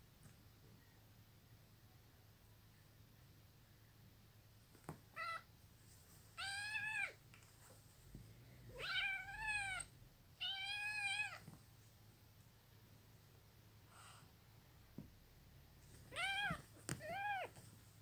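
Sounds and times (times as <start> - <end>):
cat meowing: 5.1 - 5.5, 6.4 - 7.2, 8.7 - 11.4, 16.1 - 17.6.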